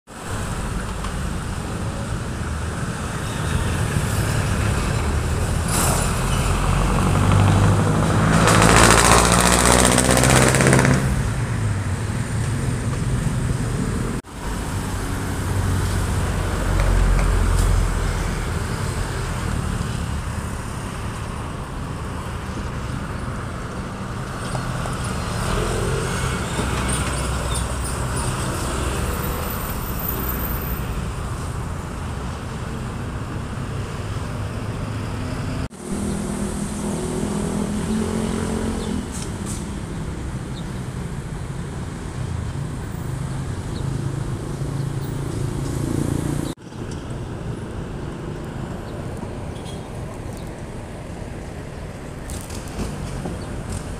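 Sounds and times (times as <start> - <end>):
road traffic rumbling: 0.1 - 53.9
heavy vehicle passing: 0.2 - 31.8.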